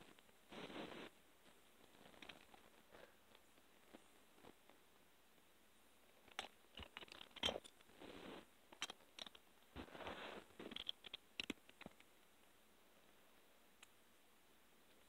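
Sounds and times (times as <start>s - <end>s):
plastic bricks clicking: 6.3s - 7.8s, 8.8s - 9.4s, 10.7s - 12.1s
fabric rustling: 9.7s - 10.8s.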